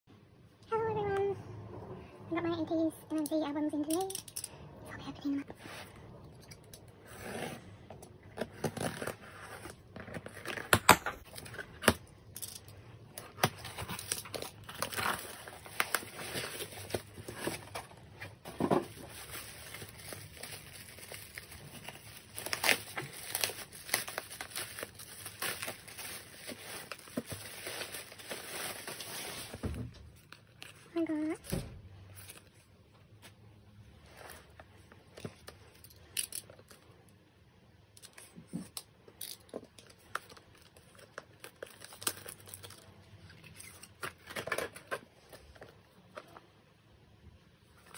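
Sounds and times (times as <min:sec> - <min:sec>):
bubble wrap crinkling: 0:13.2 - 0:29.6, 0:39.9 - 0:45.8
packing tape ripping: 0:19.0 - 0:29.4.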